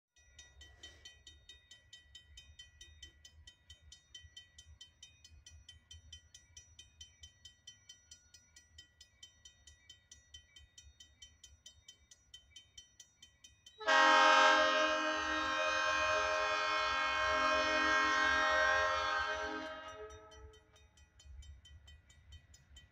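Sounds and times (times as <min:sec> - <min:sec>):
railroad crossing bell dinging: 0:09.9 - 0:22.9
locomotive air horn blasting: 0:13.8 - 0:20.4.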